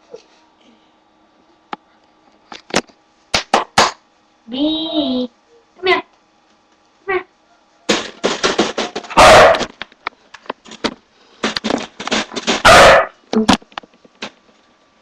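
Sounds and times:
dog barking loudly: 9.1 - 9.7, 12.6 - 13.2.

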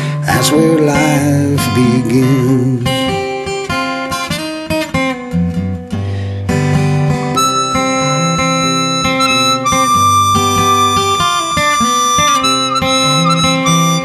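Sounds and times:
plucked acoustic guitar: 0.0 - 14.0
blues harmonica playing: 7.3 - 14.0.

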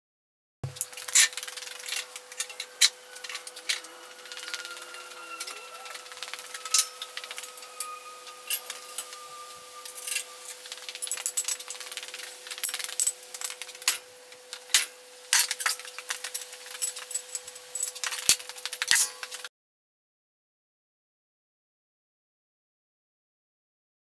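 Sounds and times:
steady hum: 0.6 - 17.9.

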